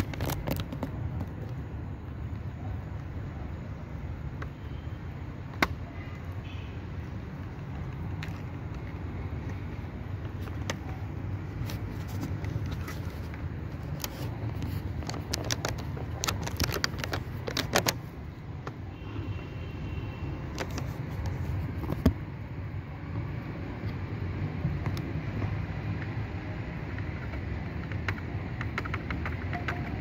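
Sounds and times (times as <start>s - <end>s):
clicks and taps of metal and plastic: 5.5s - 5.9s, 11.6s - 18.8s, 20.5s - 22.2s, 24.8s - 30.0s.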